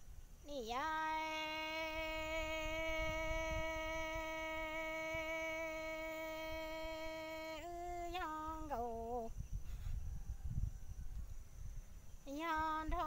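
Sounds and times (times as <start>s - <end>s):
woman singing a long note: 0.5s - 9.4s, 12.3s - 13.0s.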